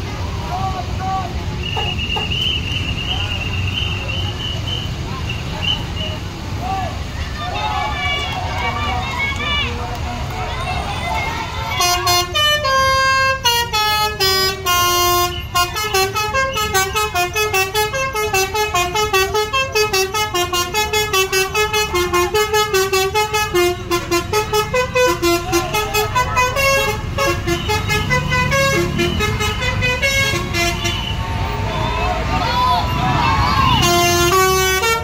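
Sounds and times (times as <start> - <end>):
bus engine rumbling: 0.0 - 35.0
melodic bus horn playing tune: 11.7 - 31.6, 33.7 - 35.0.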